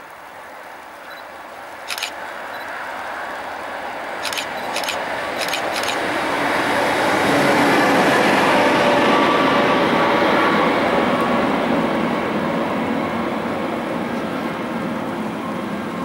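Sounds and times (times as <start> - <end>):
short sharp clicks: 1.9 - 2.2, 4.2 - 6.0.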